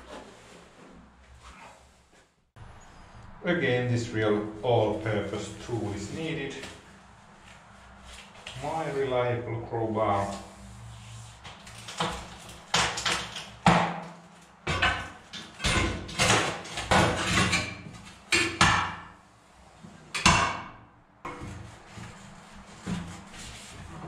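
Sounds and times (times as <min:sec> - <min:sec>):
metal clanks and knocks: 0:14.6 - 0:19.0.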